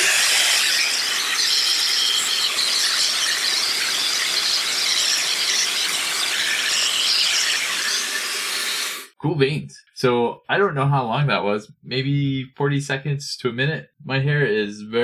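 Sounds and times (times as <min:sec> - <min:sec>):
hair dryer high wavering squeal: 0:00.0 - 0:09.2.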